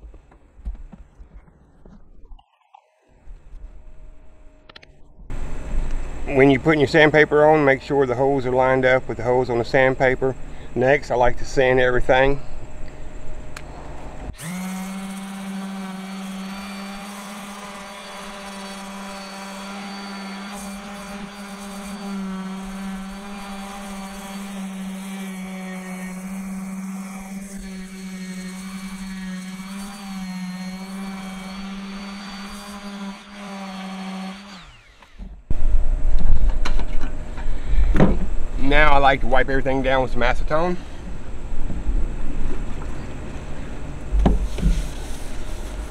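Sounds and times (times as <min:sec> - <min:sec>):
orbital sander running: 0:14.3 - 0:35.7.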